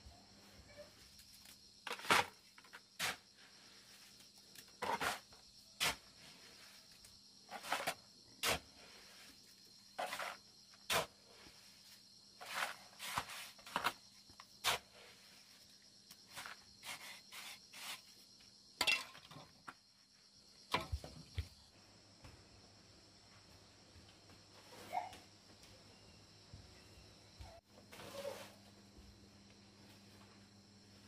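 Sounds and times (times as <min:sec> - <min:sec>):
shovel scraping mortar: 0:01.8 - 0:03.3, 0:04.7 - 0:06.7, 0:07.5 - 0:09.4, 0:10.0 - 0:15.5, 0:16.2 - 0:18.2.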